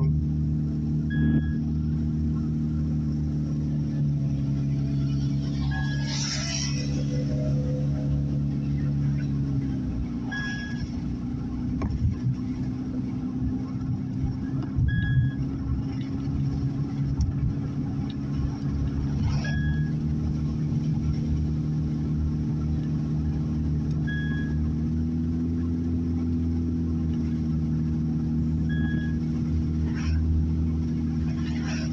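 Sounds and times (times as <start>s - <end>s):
car engine hum: 0.0s - 31.9s
tyre-on-road noise: 0.0s - 31.9s
short high beep: 1.1s - 1.7s, 5.6s - 6.2s, 10.3s - 10.9s, 14.8s - 15.4s, 19.3s - 20.0s, 24.0s - 24.6s, 28.7s - 29.2s.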